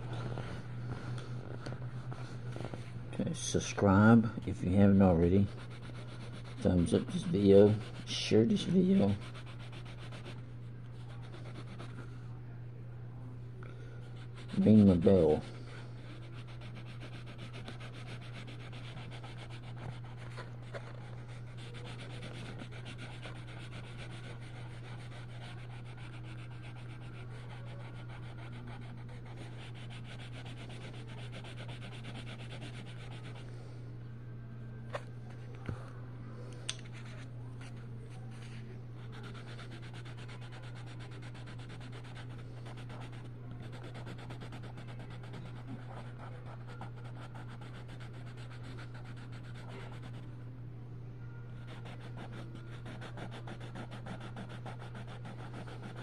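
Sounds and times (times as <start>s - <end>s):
constant low hum: 0.0s - 56.0s
pencil rubbing on paper: 5.4s - 10.4s, 14.1s - 33.4s, 38.4s - 50.2s, 51.6s - 56.0s.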